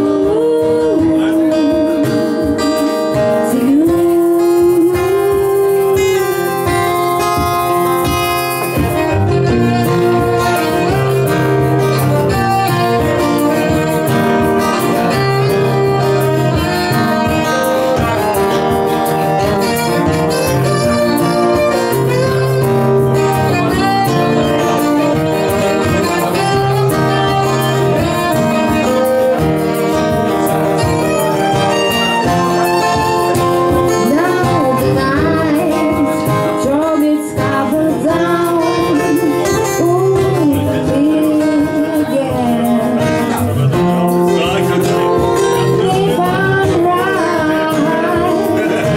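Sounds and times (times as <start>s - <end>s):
acoustic guitars: 0.0s - 48.9s
violin playing: 8.7s - 35.0s.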